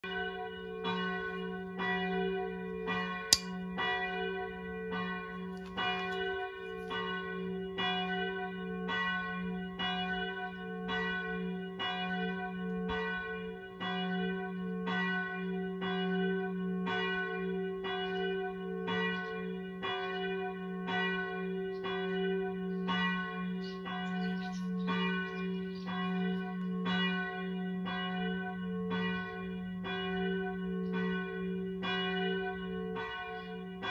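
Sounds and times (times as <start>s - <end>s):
bell strokes ringing: 3.3s - 3.6s
sharp click: 3.4s - 3.6s.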